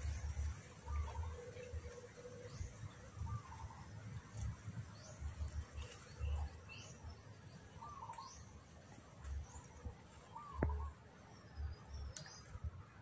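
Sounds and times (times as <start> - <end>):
birds chirping: 0.0 - 13.0
insect hum: 0.0 - 13.0
bird warbling call: 7.8 - 8.4, 10.3 - 11.0.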